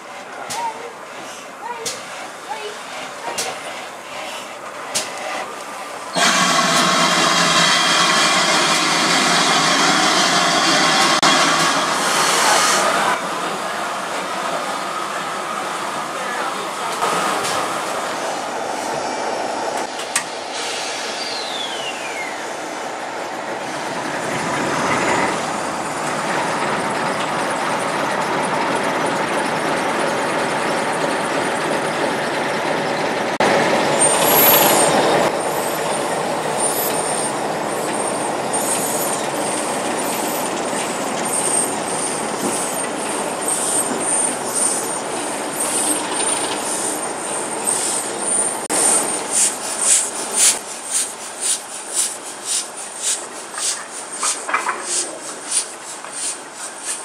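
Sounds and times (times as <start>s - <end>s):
steam locomotive hissing: 0.0s - 57.0s
loud blast of steam: 6.1s - 15.1s, 20.3s - 22.2s.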